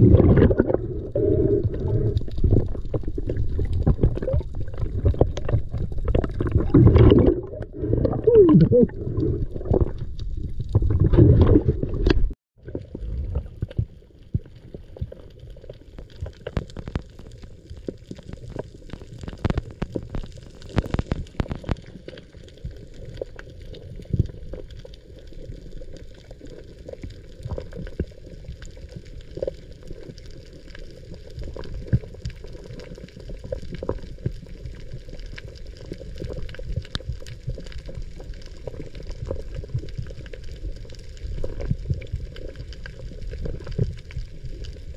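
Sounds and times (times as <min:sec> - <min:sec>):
muffled low underwater burst: 0:00.0 - 0:13.7
low underwater rumble: 0:00.0 - 0:16.0.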